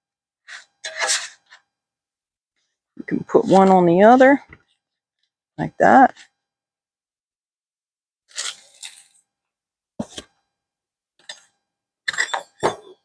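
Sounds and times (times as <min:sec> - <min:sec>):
paper plate rustling: 0:00.5 - 0:01.6, 0:08.3 - 0:09.2
utensils clattering on cutting board: 0:12.1 - 0:13.0.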